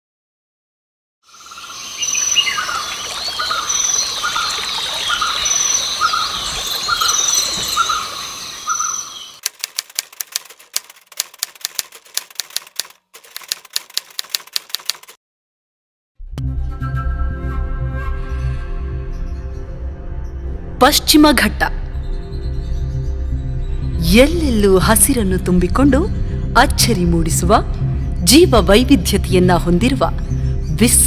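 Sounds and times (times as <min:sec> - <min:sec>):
birds calling: 0:01.3 - 0:09.4
typewriter key clicks: 0:09.4 - 0:15.2.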